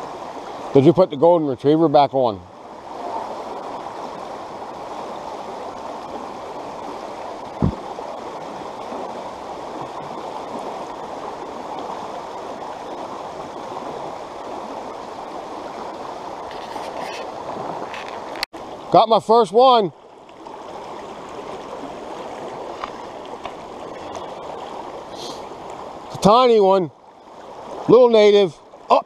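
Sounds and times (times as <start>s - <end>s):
stream water running over rocks: 0.0s - 29.0s
low thump: 7.6s - 7.8s.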